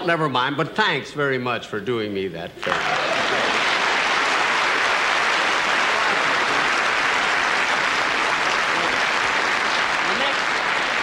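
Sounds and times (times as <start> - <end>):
audience applauding: 2.6 - 11.0.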